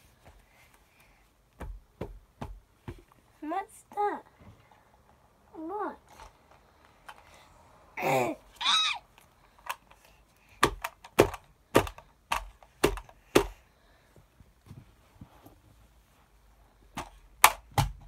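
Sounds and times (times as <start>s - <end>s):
toys banged on plastic table: 10.6s - 13.6s, 17.0s - 18.0s.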